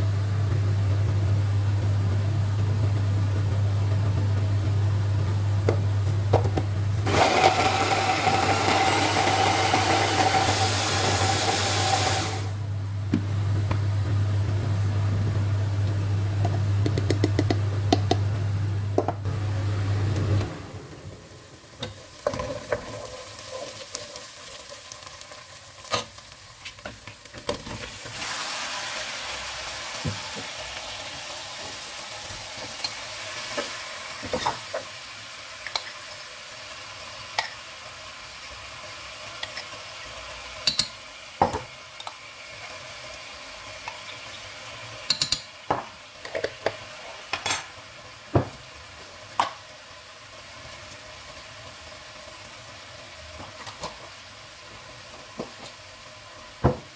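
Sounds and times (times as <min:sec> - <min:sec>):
food sizzling in hot oil: 0:07.0 - 0:12.6, 0:21.1 - 0:56.9
wooden spoon knocking pot: 0:16.8 - 0:18.2.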